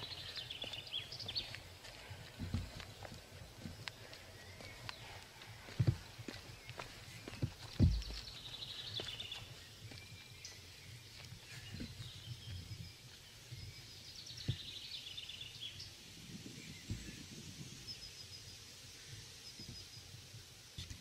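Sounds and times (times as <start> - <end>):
footsteps on wooden steps: 0.0 - 13.7.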